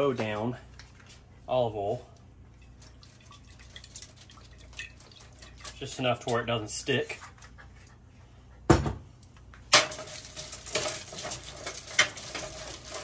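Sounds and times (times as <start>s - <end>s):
aluminium foil crinkling: 9.8s - 13.0s.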